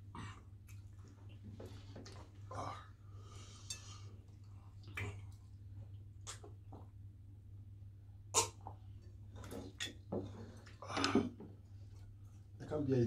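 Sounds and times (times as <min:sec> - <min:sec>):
mouth sounds of eating: 0:04.8 - 0:06.9, 0:08.3 - 0:08.9.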